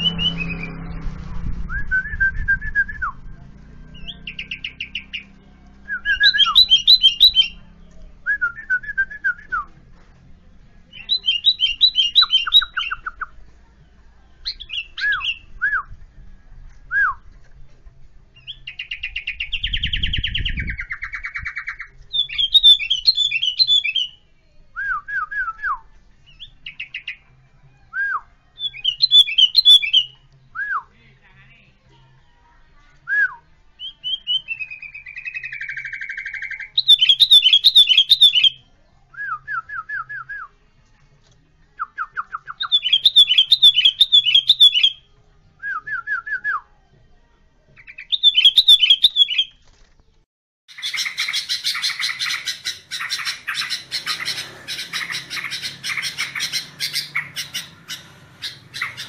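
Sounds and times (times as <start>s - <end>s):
bulbul singing: 3.8s - 9.7s, 10.9s - 13.4s, 18.4s - 24.2s, 28.0s - 30.8s, 33.1s - 40.3s, 41.9s - 46.4s, 47.8s - 49.6s, 50.7s - 59.0s.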